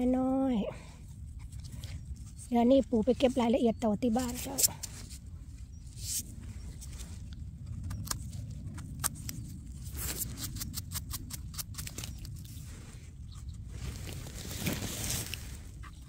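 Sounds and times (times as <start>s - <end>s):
low steady rumble: 0.0s - 16.0s
knife scraping mushroom stem: 7.8s - 12.6s.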